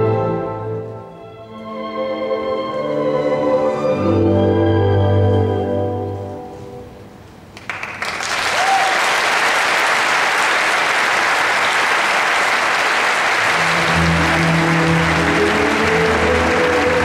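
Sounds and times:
music: 0.0s - 7.3s, 13.4s - 17.0s
crowd applauding: 7.6s - 17.0s.

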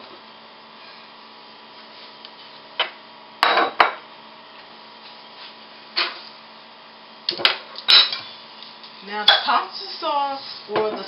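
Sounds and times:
dishes and utensils clinking: 7.9s - 8.3s.

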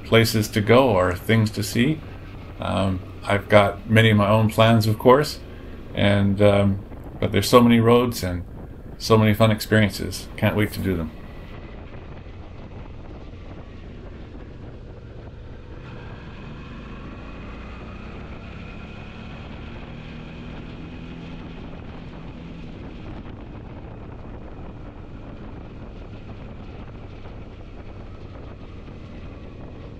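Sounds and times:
wind noise on microphone: 0.0s - 29.9s
motorcycle engine running: 10.2s - 29.9s.

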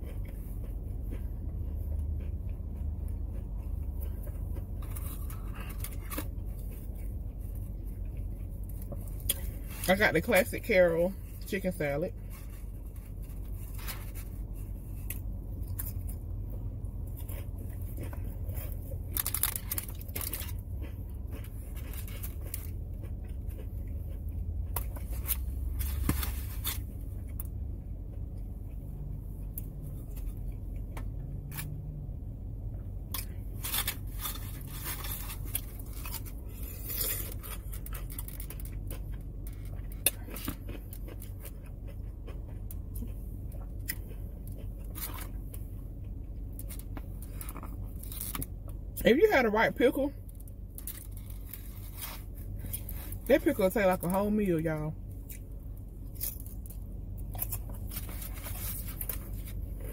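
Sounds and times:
crackers crunching and chewing: 0.0s - 49.0s, 50.2s - 54.4s, 55.0s - 59.9s
low hum in car cabin: 0.0s - 59.9s
cellophane packet crinkling: 19.0s - 20.6s.

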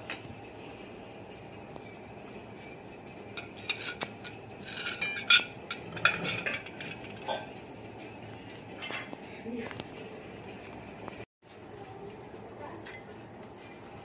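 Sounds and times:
metal ladle clinking against pot: 3.4s - 7.5s.

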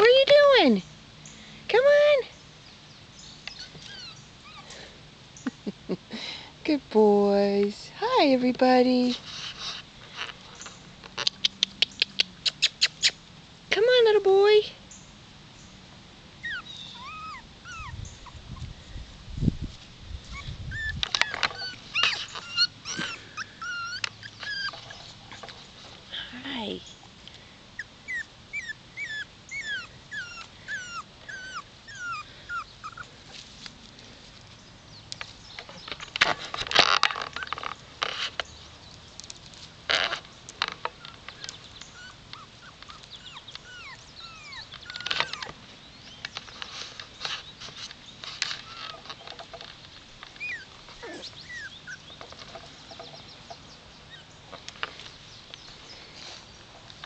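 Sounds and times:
puppies whimpering: 3.5s - 4.9s, 16.4s - 18.7s, 20.3s - 25.2s, 27.8s - 33.2s, 41.0s - 45.6s, 48.6s - 49.2s, 50.3s - 52.2s, 54.0s - 54.3s.

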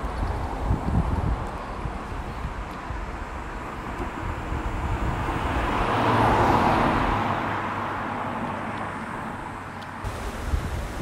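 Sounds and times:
vehicle passing by: 3.5s - 10.2s.

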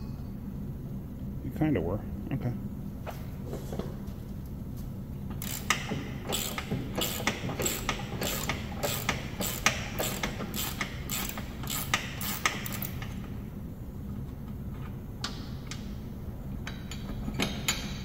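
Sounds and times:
ratchet wrench clicking: 5.4s - 13.1s.

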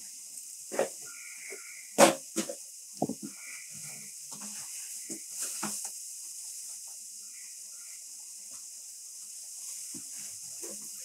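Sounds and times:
faint bird calls: 1.0s - 2.0s, 3.0s - 4.2s, 7.2s - 8.1s
light rain on foliage: 2.6s - 11.0s.

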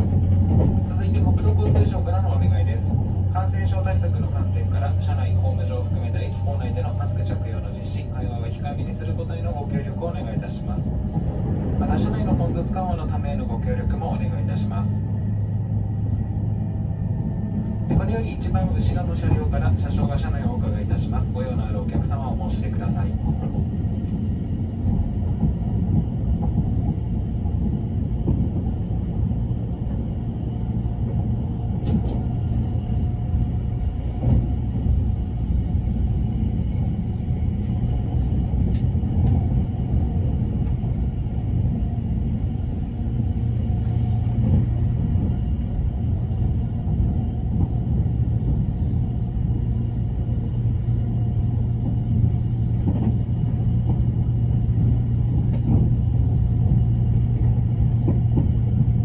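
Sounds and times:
train running noise: 0.0s - 59.0s.

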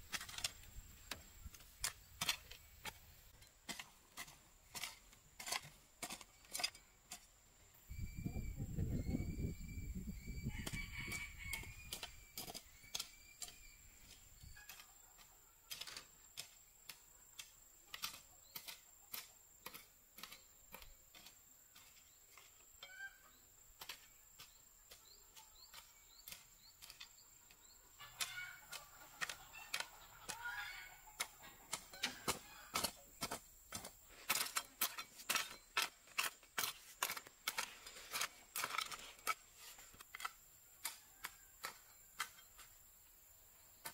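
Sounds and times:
hoe chopping dry soil: 0.0s - 7.4s, 10.5s - 42.8s
chickens clucking: 8.2s - 21.0s, 22.8s - 36.1s.

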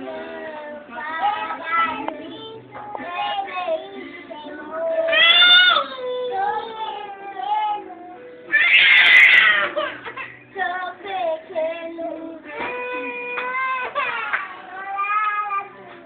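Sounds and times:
girls singing together: 0.0s - 16.0s.

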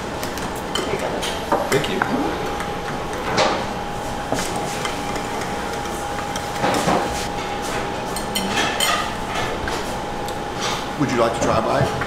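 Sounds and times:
room hum: 0.0s - 12.0s
cutlery scraping on plates: 4.4s - 9.8s.

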